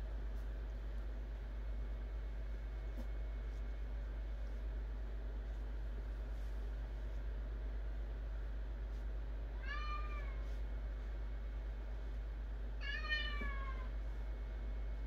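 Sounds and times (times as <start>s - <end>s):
steady low hum: 0.0s - 15.0s
cat meowing: 9.6s - 10.4s, 12.8s - 13.9s.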